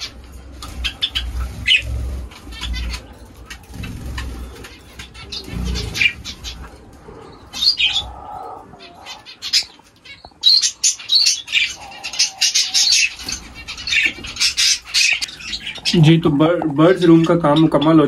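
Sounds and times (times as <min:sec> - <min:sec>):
wings flapping: 0:00.0 - 0:08.0
dove cooing: 0:00.0 - 0:15.9
small birds chirping: 0:00.0 - 0:18.0.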